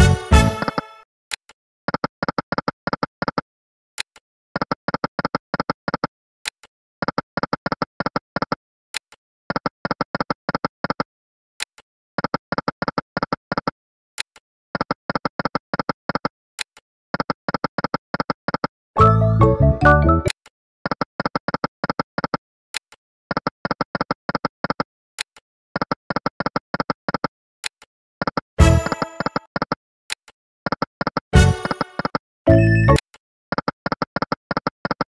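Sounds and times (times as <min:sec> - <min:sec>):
win jingle: 0:28.6 - 0:29.5.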